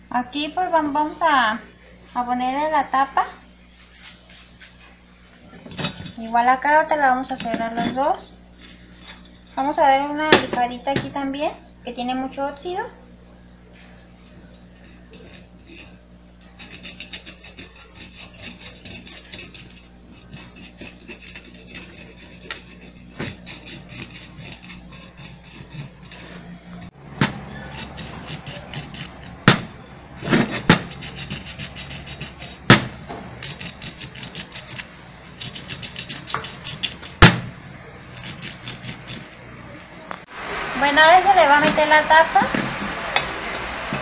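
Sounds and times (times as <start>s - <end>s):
sandpaper rubbing metal: 14.8s - 26.9s, 27.5s - 29.5s, 30.2s - 32.7s, 33.3s - 37.3s, 38.1s - 39.3s
sharp knocks: 29.4s - 31.0s, 32.7s - 33.2s, 37.2s - 37.5s.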